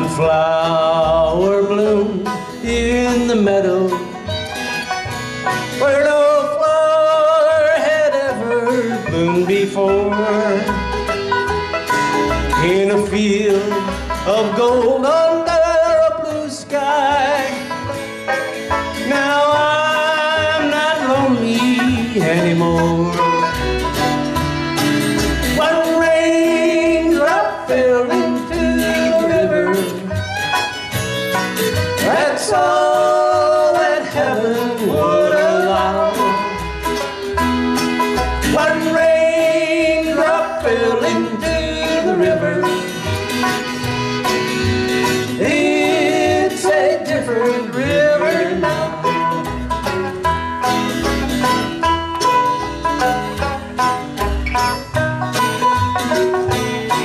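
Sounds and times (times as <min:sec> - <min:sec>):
acoustic guitar: 0:00.0 - 0:57.0
banjo: 0:00.0 - 0:57.0
fiddle: 0:00.0 - 0:57.0
upright bass: 0:00.0 - 0:57.0
person singing: 0:05.7 - 0:10.9, 0:18.8 - 0:23.9, 0:25.6 - 0:30.2, 0:32.0 - 0:36.7, 0:38.5 - 0:43.6, 0:45.2 - 0:49.6.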